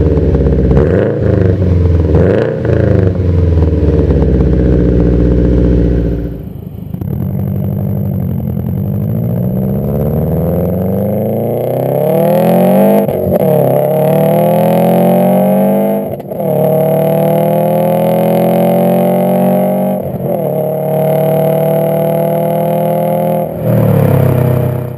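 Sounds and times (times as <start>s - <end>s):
car engine accelerating: 0.0s - 24.9s.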